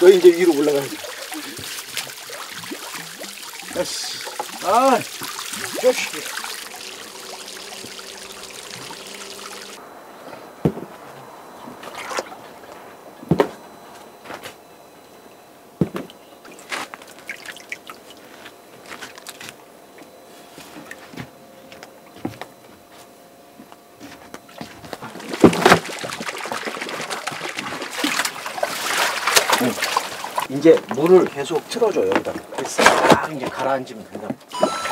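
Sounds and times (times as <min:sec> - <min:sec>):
small splashes in water: 0:00.0 - 0:09.8, 0:16.4 - 0:18.3, 0:25.0 - 0:31.2
soil tipped into water splashing: 0:00.0 - 0:09.8, 0:25.0 - 0:31.0.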